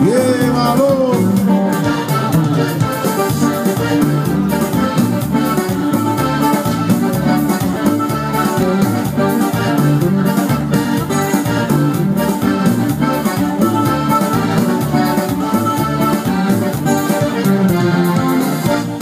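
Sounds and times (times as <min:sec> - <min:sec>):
acoustic guitar: 0:00.0 - 0:19.0
electronic keyboard organ part: 0:00.0 - 0:19.0
steady beat: 0:00.0 - 0:19.0.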